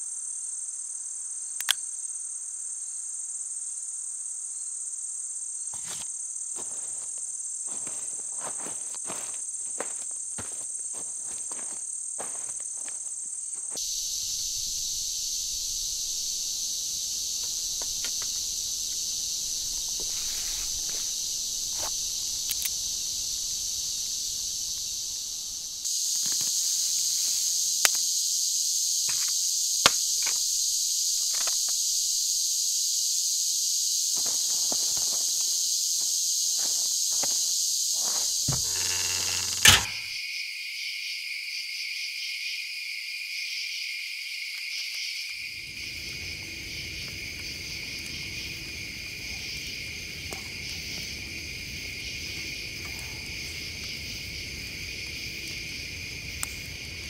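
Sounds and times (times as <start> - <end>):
insect chorus buzzing: 0.0 - 57.0
sharp clicks: 1.6 - 1.8, 22.4 - 22.8
light crackles: 13.6 - 28.1.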